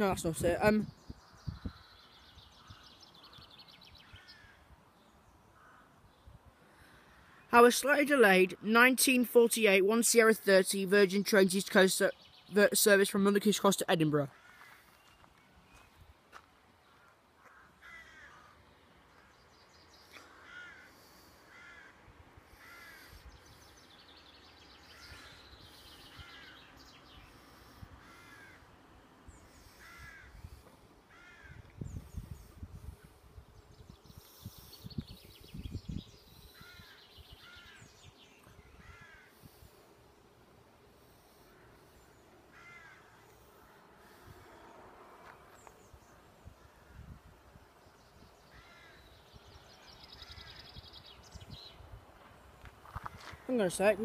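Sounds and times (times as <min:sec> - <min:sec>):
wind buffeting microphone: 0:00.0 - 0:04.9, 0:29.8 - 0:39.7, 0:45.8 - 0:48.4
birds twittering: 0:00.0 - 0:08.6, 0:11.2 - 0:52.2
birds calling: 0:00.0 - 0:08.8, 0:11.3 - 0:54.0.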